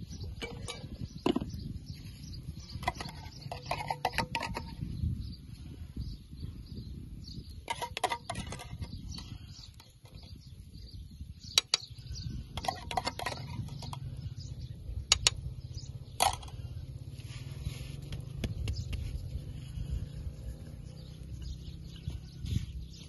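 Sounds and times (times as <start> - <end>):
steady low rumble: 13.4 - 23.0.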